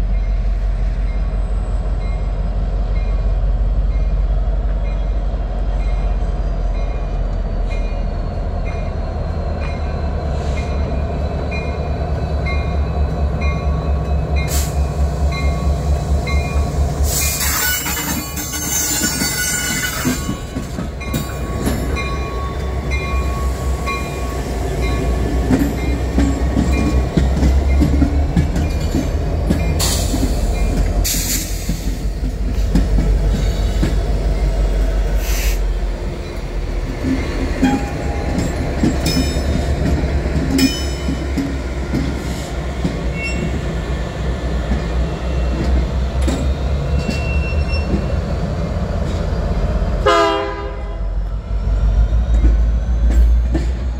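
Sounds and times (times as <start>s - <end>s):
wheel squeal: 17.1s - 20.4s, 46.9s - 48.2s.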